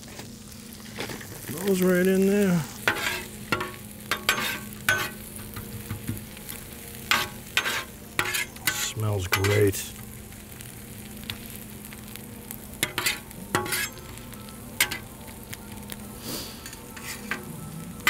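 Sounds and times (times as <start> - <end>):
vegetables sizzling on griddle: 0.0 - 18.0
metal spatula scraping griddle: 2.8 - 5.6, 7.0 - 9.8, 12.8 - 14.2, 16.2 - 17.6.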